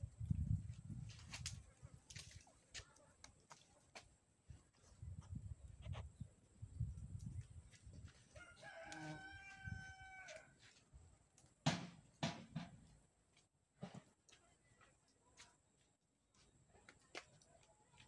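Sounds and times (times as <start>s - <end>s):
distant rooster crowing: 8.3s - 10.6s
sharp knocks: 11.7s - 12.8s.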